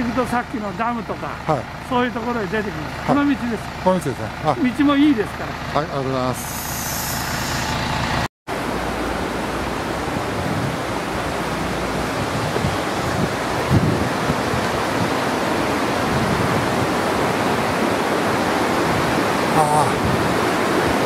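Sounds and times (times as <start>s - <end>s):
river rushing over rocks: 8.5s - 21.0s.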